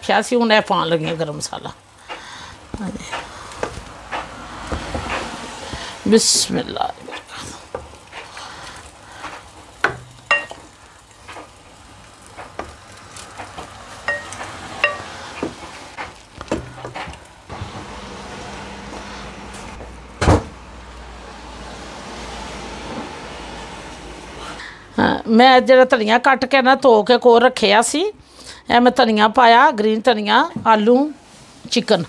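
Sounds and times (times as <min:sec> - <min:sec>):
ladle clinking against metal pot: 0:10.3 - 0:10.6
loud knock: 0:20.2 - 0:20.6.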